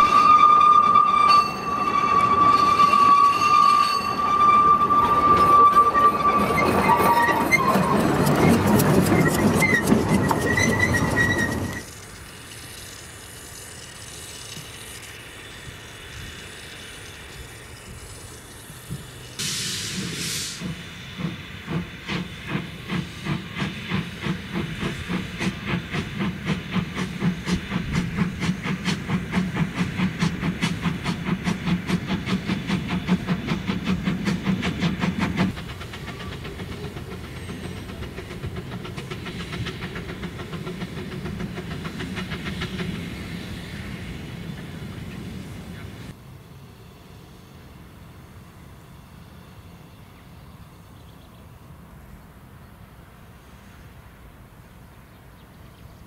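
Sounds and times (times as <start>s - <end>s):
steam hissing: 0.0s - 46.2s
steam locomotive exhaust chuffs: 0.0s - 46.2s
sharp burst of steam: 11.8s - 46.1s.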